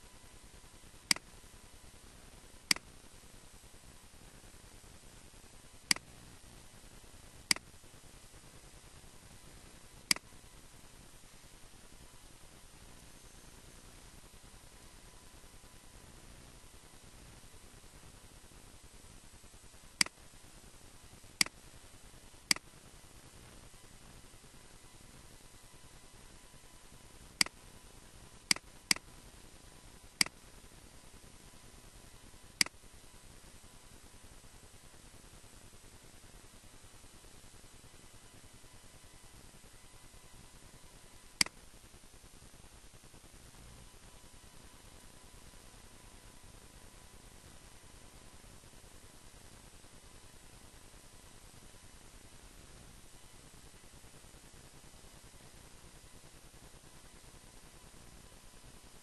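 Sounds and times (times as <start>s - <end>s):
faint steady hiss: 0.0s - 59.0s
computer mouse button clicking: 1.1s - 1.3s, 2.7s - 2.9s, 5.9s - 6.1s, 7.5s - 7.7s, 10.1s - 10.3s, 28.5s - 29.1s.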